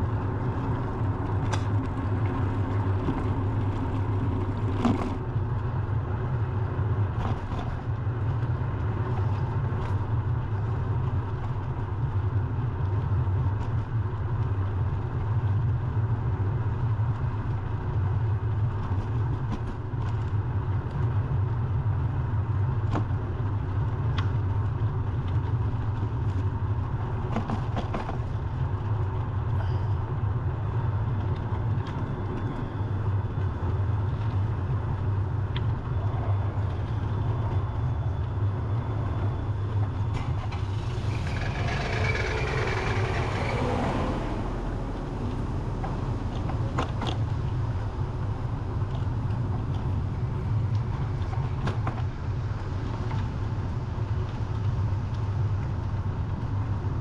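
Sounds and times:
wind rumble on microphone: 0.0s - 57.0s
passing vehicle hiss: 40.4s - 46.8s.

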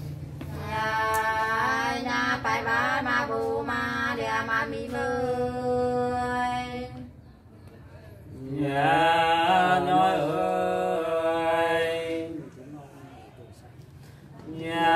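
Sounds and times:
woman singing unaccompanied folk song: 0.5s - 7.1s.

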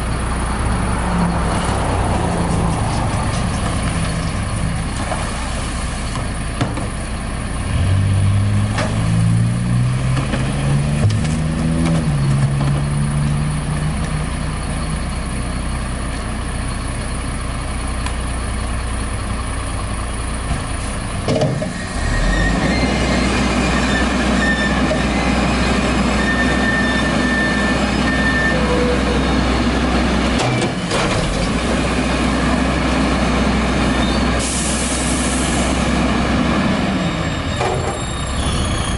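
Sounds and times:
diesel truck engine idling: 0.0s - 7.8s, 13.4s - 21.3s.

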